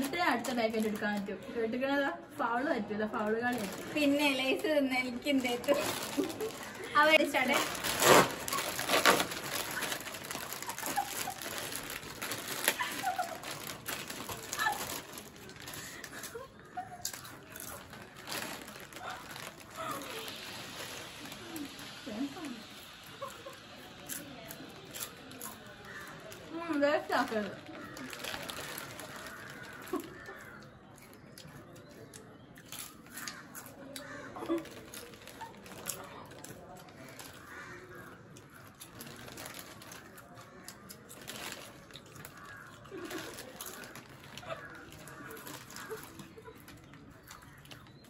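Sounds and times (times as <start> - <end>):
foil chip packets crinkling: 0.0 - 1.3, 3.1 - 48.0
packets tearing open: 5.3 - 22.0, 27.3 - 30.6, 38.8 - 48.0.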